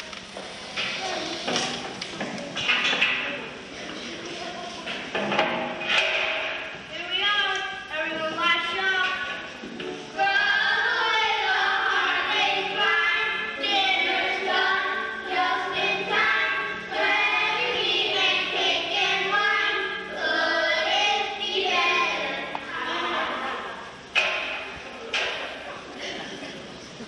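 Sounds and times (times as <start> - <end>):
children singing in chorus: 10.2 - 24.6.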